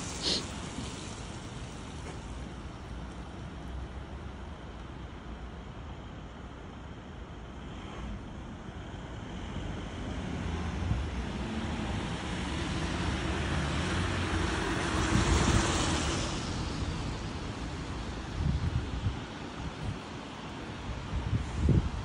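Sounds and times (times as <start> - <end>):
vehicle passing by: 9.3 - 17.4.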